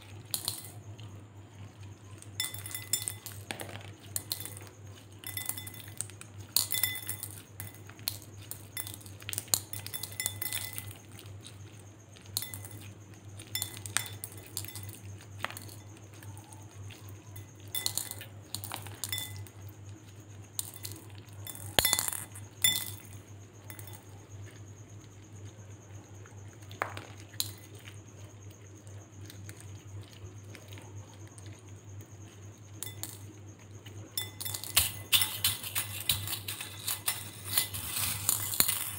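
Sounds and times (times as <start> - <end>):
steady low hum: 0.0 - 38.9
beads clinking against glass bowl: 0.1 - 1.1, 2.0 - 19.7, 20.5 - 24.2, 32.8 - 33.4, 34.0 - 38.9.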